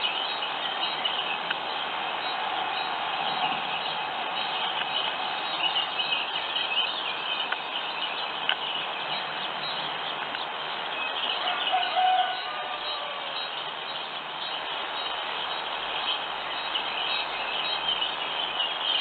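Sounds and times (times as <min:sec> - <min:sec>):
songbirds chirping: 0:00.0 - 0:19.0
steady hiss: 0:00.0 - 0:19.0.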